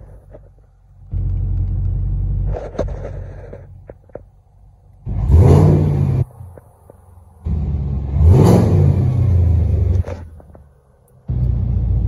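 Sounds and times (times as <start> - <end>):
car engine idling: 0.0 - 12.0
car engine revving: 4.9 - 12.0.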